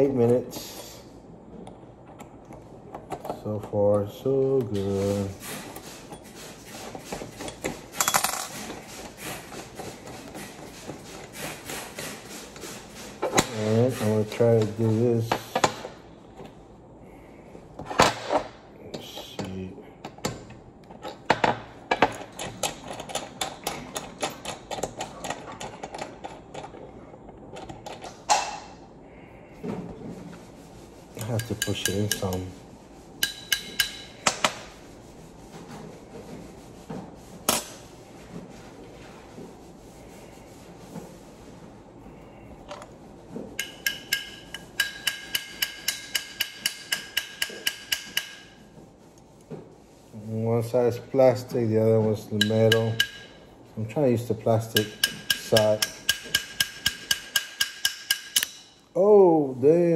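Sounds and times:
small hammer tapping metal punch: 33.2 - 34.4, 43.6 - 48.5, 52.4 - 53.4, 54.7 - 58.7
tool handle clicking: 54.8 - 58.7.

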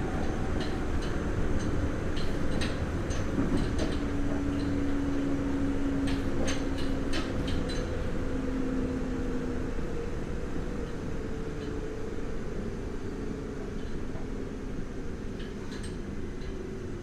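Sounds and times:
electric train rumble and drive whine: 0.0 - 17.0
wheel clicks over rail joints: 0.2 - 5.3, 6.0 - 8.0.

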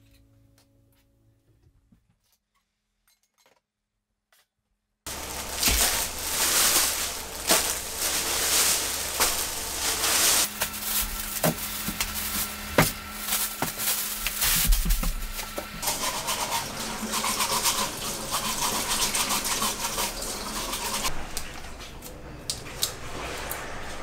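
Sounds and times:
plastic bag rustling: 5.1 - 16.0.

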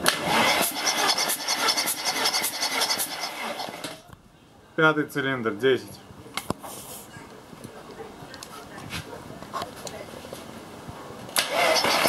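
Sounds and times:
rustling and scraping: 8.4 - 10.6.

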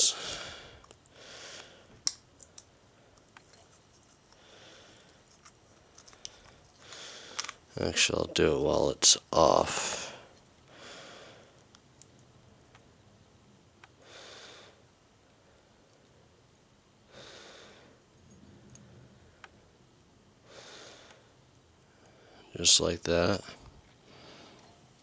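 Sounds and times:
person breathing through the nose: 0.0 - 1.9, 4.4 - 5.2, 6.1 - 7.6, 9.7 - 11.6, 14.0 - 14.8, 17.1 - 18.0, 20.4 - 21.3
faint clicks of small metal parts: 0.8 - 7.7, 11.4 - 12.9, 15.2 - 16.2, 18.1 - 19.6, 22.9 - 25.0.

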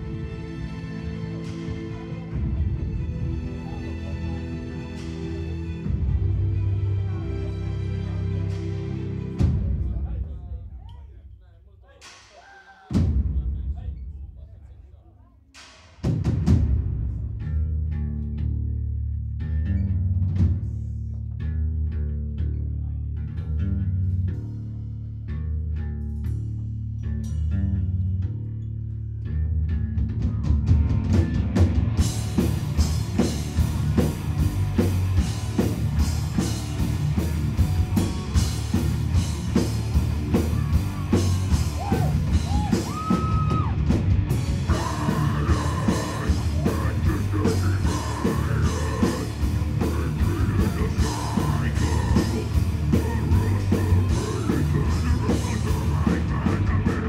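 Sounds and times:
heavy drum and bass hits: 15.6 - 17.8, 30.0 - 57.0
metal band playing live: 30.0 - 57.0
loud electric guitar: 30.4 - 57.0.

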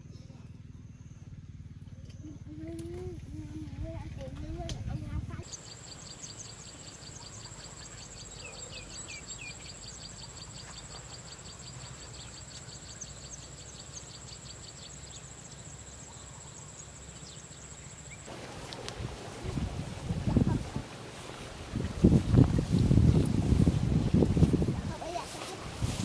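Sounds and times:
bird chirps: 5.4 - 18.3
insects droning and trilling: 5.4 - 26.0
broad rushing noise: 18.2 - 26.0.

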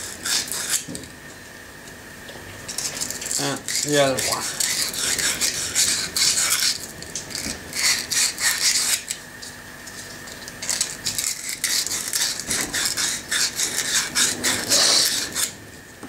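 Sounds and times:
sandpaper rubbing on metal tube: 3.6 - 6.8, 7.7 - 9.1, 10.6 - 15.5.

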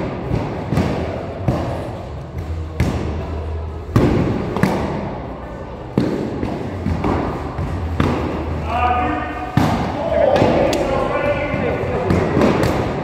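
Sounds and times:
padded swords striking shields: 9.5 - 10.9.

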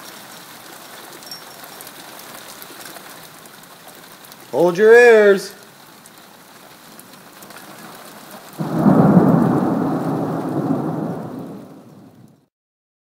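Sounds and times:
steady rain: 0.0 - 12.5
thunder clap and rumble: 8.6 - 12.5.

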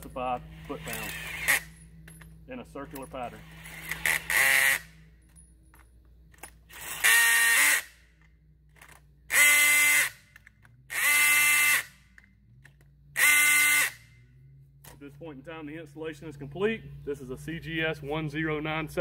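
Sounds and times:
cordless power driver bursts: 3.8 - 4.9, 6.7 - 8.0, 9.3 - 10.2, 10.9 - 12.0, 13.2 - 14.1.

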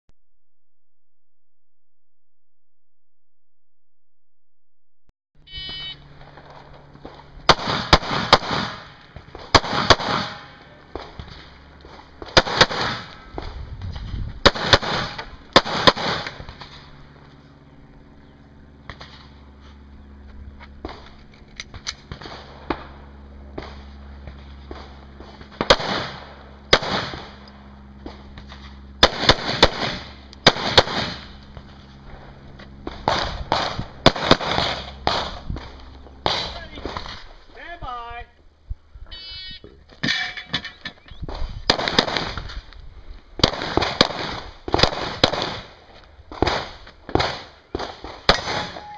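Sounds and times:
short electronic beep: 5.4 - 6.0, 48.6 - 48.9
gun handling clicks: 21.2 - 22.1.

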